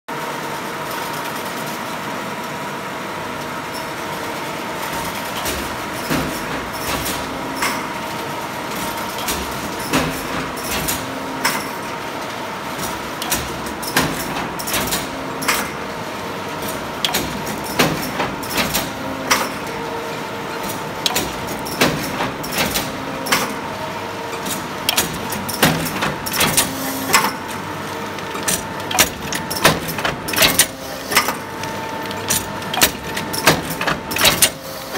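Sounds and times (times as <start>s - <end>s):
sharp mechanical clacks: 12.8s - 15.8s, 16.6s - 19.8s, 20.6s - 23.6s, 24.3s - 34.9s.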